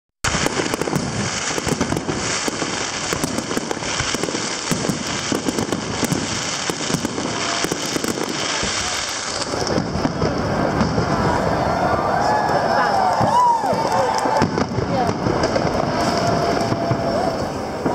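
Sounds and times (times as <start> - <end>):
fireworks bursting: 0.2 - 17.9
crackle of rapid small pops: 0.3 - 9.8.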